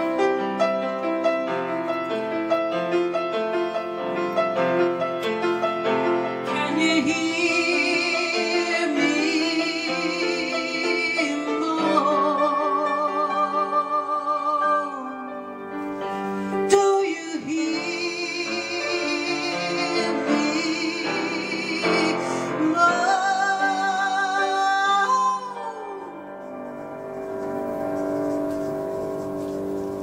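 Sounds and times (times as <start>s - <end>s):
piano accompaniment: 0.0s - 30.0s
woman singing with vibrato: 6.5s - 15.4s, 16.7s - 26.2s.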